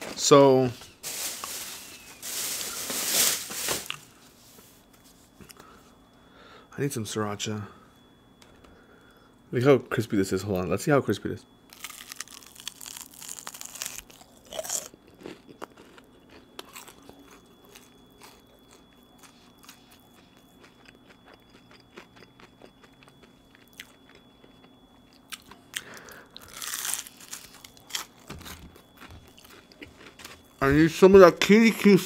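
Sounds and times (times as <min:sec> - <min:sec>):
crunchy bites into fried food: 0:11.7 - 0:16.0, 0:26.4 - 0:30.4.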